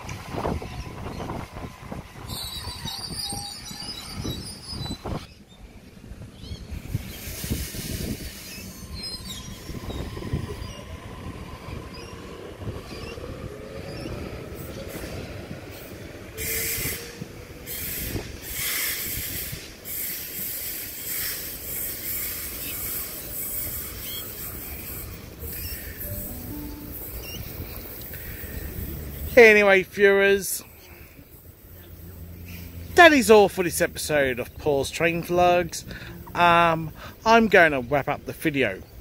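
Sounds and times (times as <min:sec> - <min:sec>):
high-pitched wheel squeal: 0:02.2 - 0:05.3.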